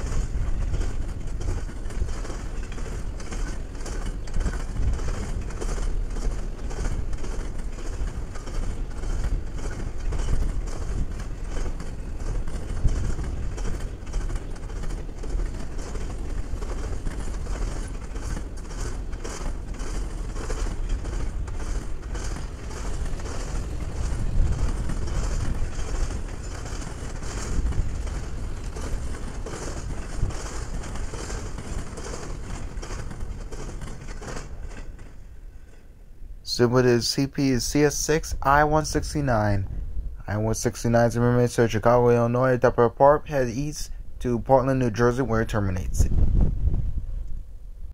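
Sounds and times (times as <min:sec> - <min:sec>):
wheels clacking over track: 0:00.0 - 0:35.9
train wheels rumbling on rail: 0:00.0 - 0:47.9.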